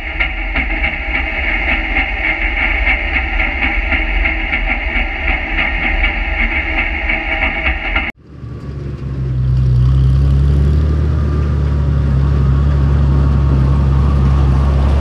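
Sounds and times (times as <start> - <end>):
tractor engine idling: 7.7 - 15.0.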